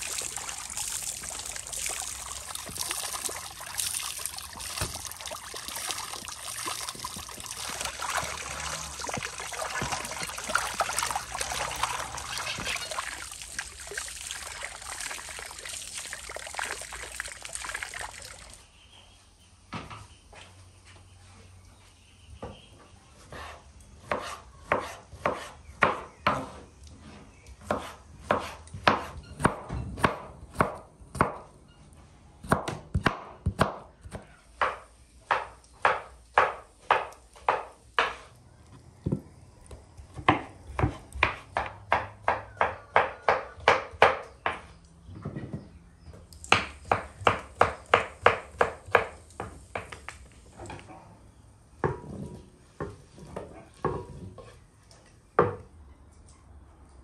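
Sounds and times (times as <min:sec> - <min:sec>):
knife chopping on cutting board: 0:23.4 - 0:26.5, 0:27.6 - 0:31.4.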